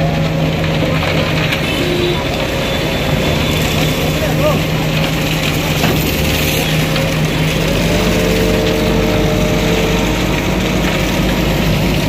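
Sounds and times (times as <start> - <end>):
concrete mixer engine running: 0.0 - 12.0
steady higher hum: 7.5 - 12.0.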